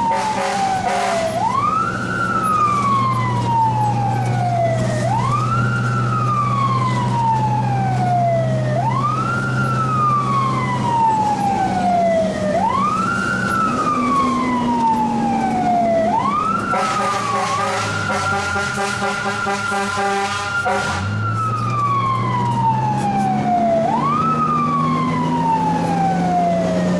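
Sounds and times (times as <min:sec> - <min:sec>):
low blaring horn tone: 0:00.0 - 0:01.6, 0:16.6 - 0:21.3
fire truck siren wailing: 0:00.0 - 0:26.9
truck engine drone: 0:00.0 - 0:26.9.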